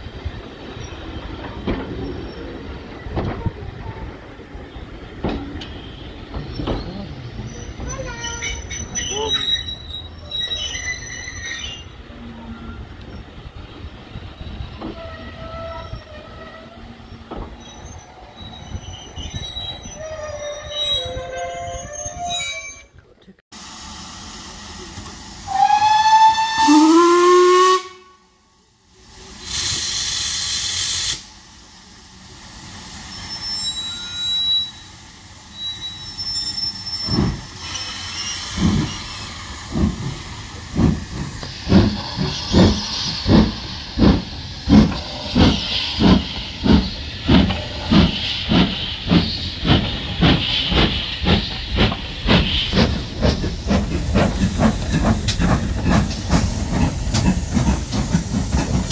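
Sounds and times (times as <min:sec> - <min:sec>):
steam hissing: 0:23.6 - 0:28.0, 0:28.7 - 0:58.9
steam locomotive whistle: 0:25.5 - 0:28.4
steam locomotive exhaust beats: 0:36.8 - 0:58.9.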